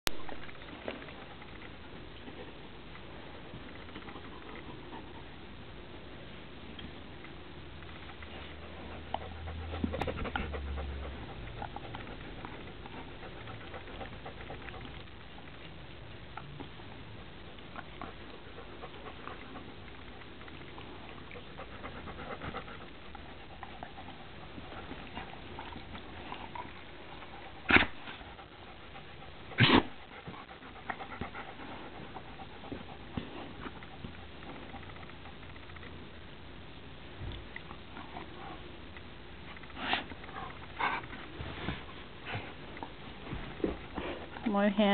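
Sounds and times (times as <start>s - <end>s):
dog panting: 8.0s - 15.6s, 17.8s - 35.6s, 39.5s - 44.9s.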